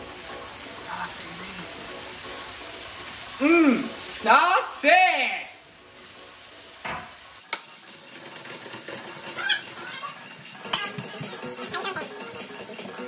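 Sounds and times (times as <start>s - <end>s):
sauce sizzling in a skillet: 0.0s - 13.0s
wooden spoon scraping a pan: 7.5s - 13.0s.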